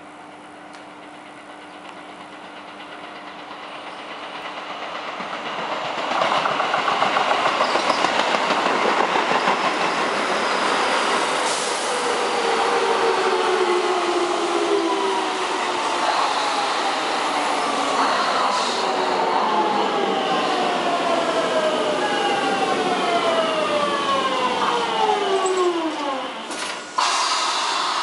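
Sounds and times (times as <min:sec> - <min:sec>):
train rumble: 0:00.0 - 0:28.0
train wheel clatter: 0:00.2 - 0:11.8.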